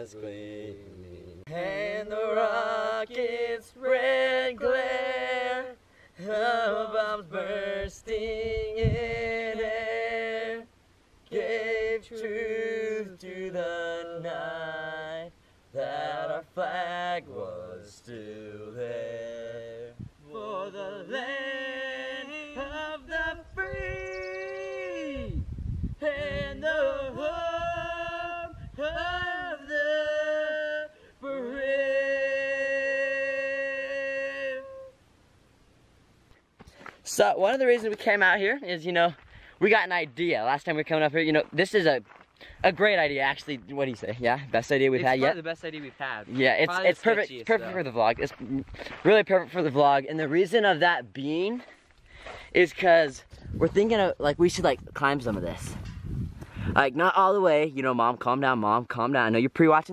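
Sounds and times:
person singing slowly: 0.0s - 10.7s, 11.3s - 35.0s.

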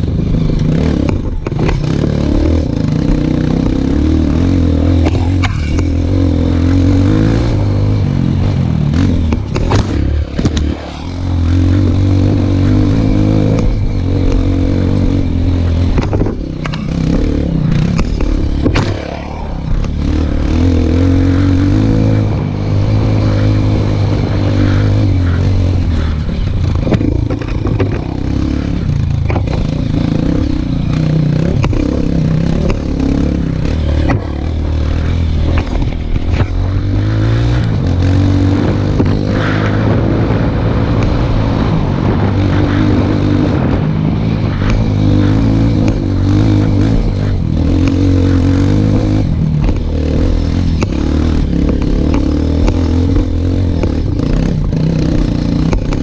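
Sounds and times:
dirt bike engine revving: 0.0s - 56.0s
knocks and scrapes: 4.9s - 6.6s, 24.6s - 30.2s, 31.4s - 37.7s.

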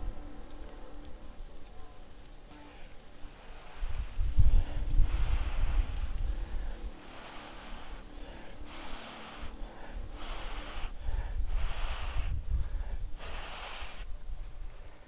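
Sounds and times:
person blowing hard: 2.5s - 14.1s.

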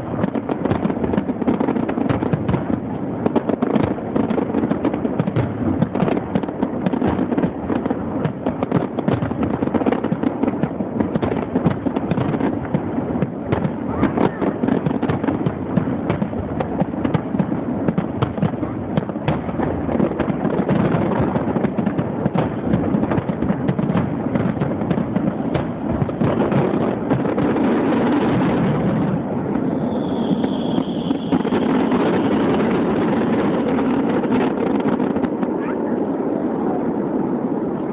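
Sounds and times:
fireworks bangs and crackles: 0.0s - 37.9s
high whistle: 29.6s - 31.9s.

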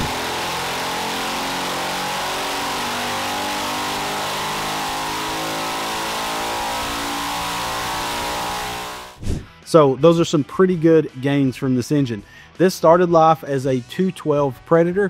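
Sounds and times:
engine revving at full throttle: 0.0s - 9.2s.

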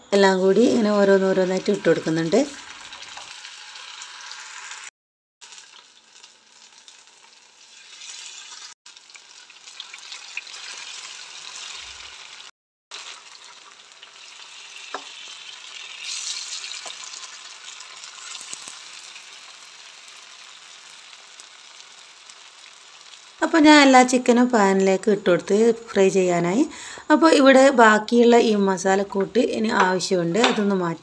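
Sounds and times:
chicken sizzling in oil: 1.2s - 24.2s.

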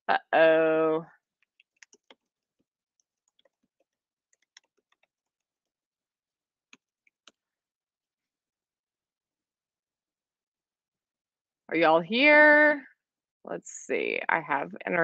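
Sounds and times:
keyboard and mouse clicks: 1.4s - 2.4s, 3.0s - 5.5s.

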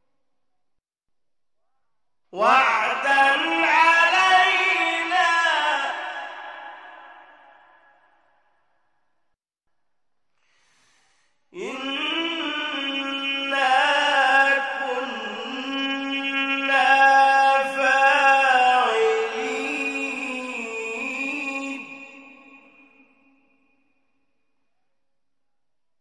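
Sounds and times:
man reciting melodically: 2.4s - 7.6s, 11.5s - 23.4s.

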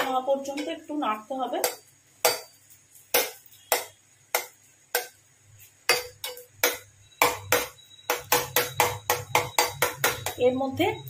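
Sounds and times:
utensil knocking against pan: 5.9s - 10.4s.

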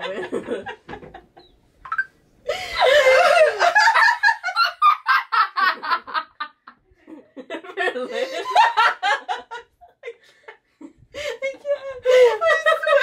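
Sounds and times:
women laughing: 0.0s - 1.5s, 2.5s - 13.0s
loud squealing laugh: 2.6s - 5.7s.

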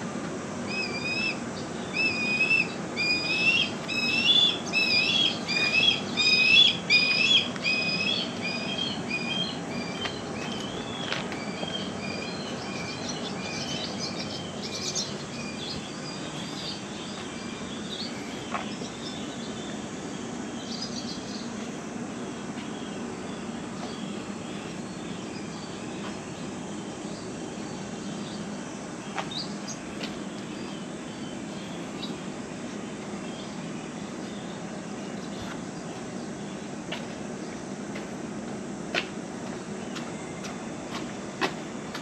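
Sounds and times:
low background hum: 0.0s - 42.0s
bird chirping: 0.7s - 32.2s.

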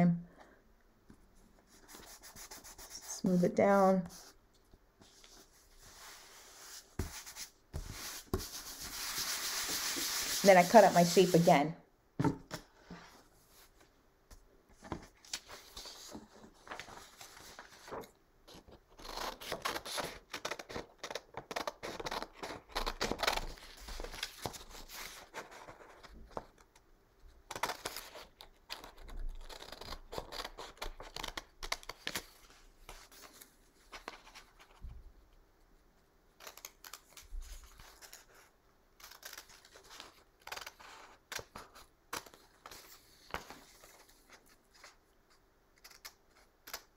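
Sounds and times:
scissors snipping paper: 39.0s - 42.4s.

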